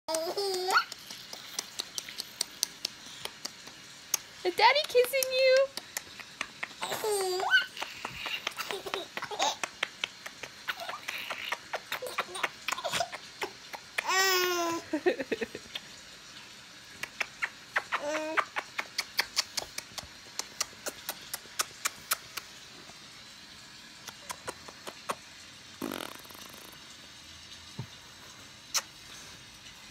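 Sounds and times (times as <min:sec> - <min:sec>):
baby laughing in squeals: 0:06.8 - 0:09.7, 0:10.6 - 0:14.9.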